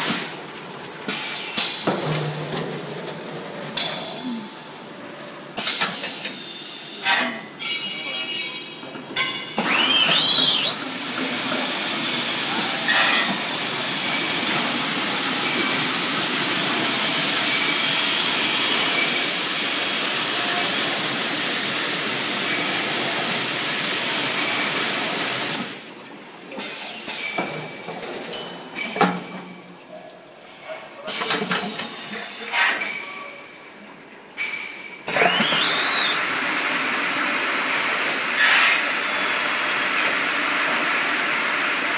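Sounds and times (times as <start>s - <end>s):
machine knocks and clanks: 1.1s - 4.1s
water spraying hiss: 9.6s - 25.7s.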